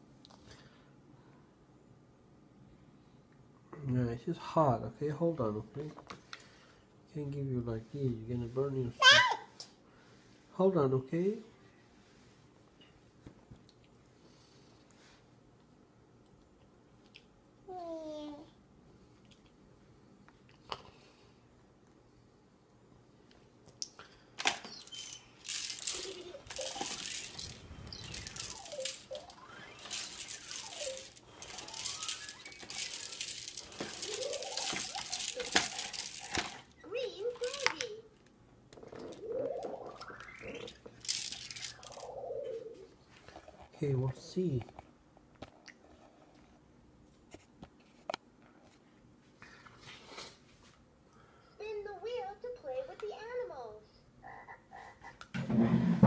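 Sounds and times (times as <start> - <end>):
sliding squeaky tones: 24.7 - 37.6.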